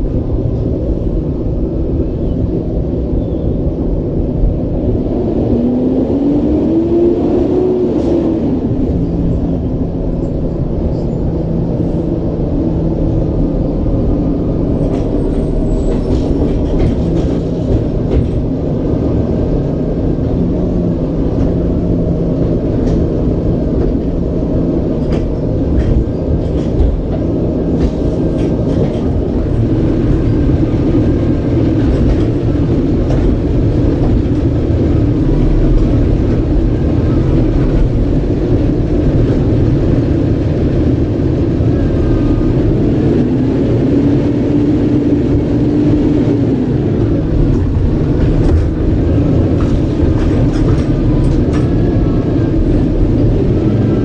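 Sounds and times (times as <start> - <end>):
garbage truck rumbling: 0.0 - 54.0
knocks and clanks: 14.8 - 18.6.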